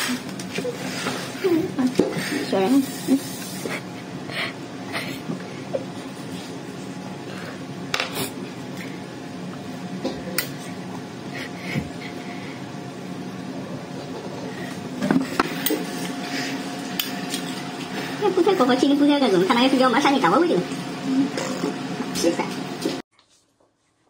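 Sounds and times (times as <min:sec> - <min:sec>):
faint room hum: 0:00.0 - 0:24.0.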